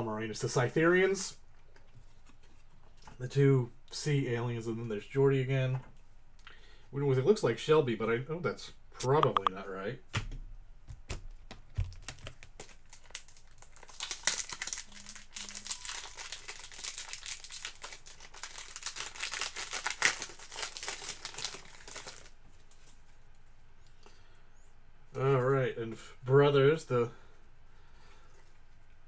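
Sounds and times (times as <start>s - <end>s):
wrapper crinkling and crackling: 11.7s - 23.0s.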